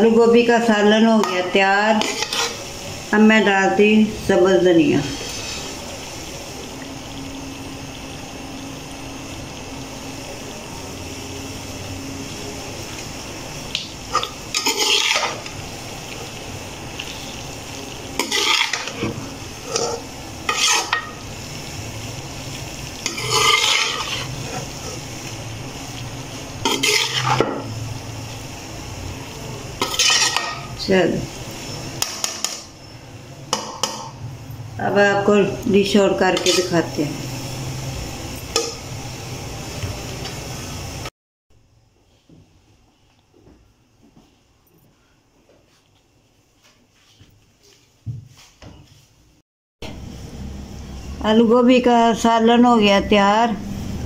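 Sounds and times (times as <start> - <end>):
pan sizzling: 0.0 - 41.1
metal spatula scraping pan: 1.2 - 2.6, 5.0 - 5.8, 14.2 - 15.5, 18.2 - 21.2, 23.0 - 25.0, 26.6 - 27.7, 29.8 - 30.7, 36.3 - 36.9.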